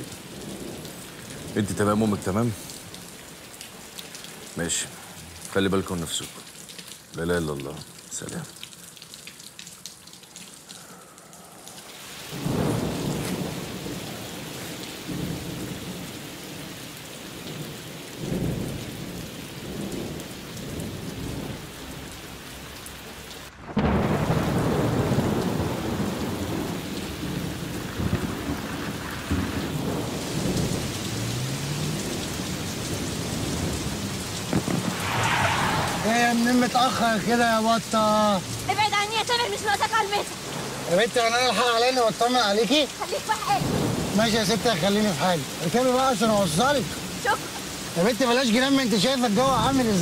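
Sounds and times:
heavy rain pouring: 0:00.0 - 0:50.0
thunder rumbling: 0:12.2 - 0:16.8, 0:23.5 - 0:37.9, 0:43.2 - 0:45.2.

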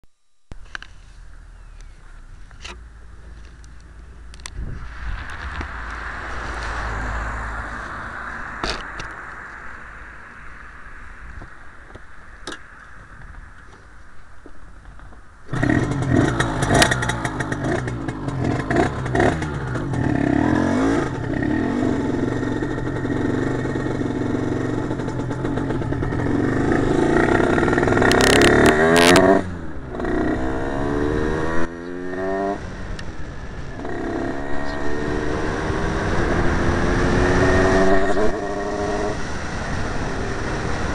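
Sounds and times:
two-stroke engine revving: 0:15.5 - 0:32.6.

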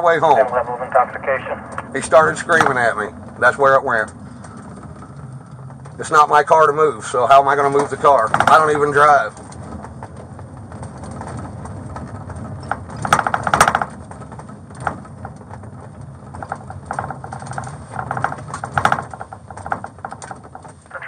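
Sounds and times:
muffled voices: 0:00.0 - 0:04.2
car interior hum: 0:00.0 - 0:21.0.

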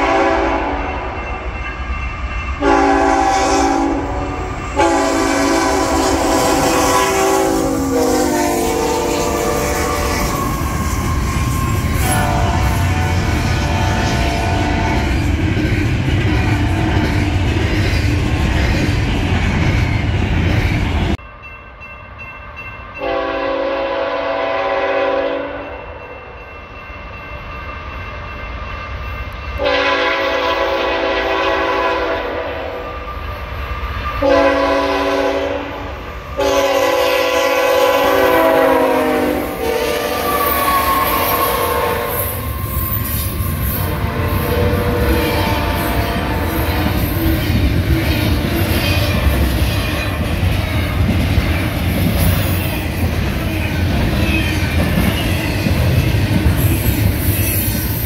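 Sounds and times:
locomotive air horn: 0:00.0 - 0:01.1, 0:02.6 - 0:15.1, 0:23.0 - 0:26.0, 0:29.6 - 0:33.0, 0:34.2 - 0:42.6, 0:43.8 - 0:46.9
train rumble and wheel clatter: 0:00.0 - 0:58.0.

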